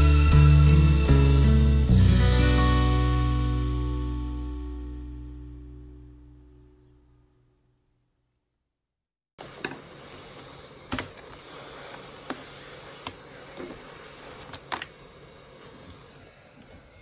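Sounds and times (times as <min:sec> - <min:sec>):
heat gun hissing: 0:09.8 - 0:17.0.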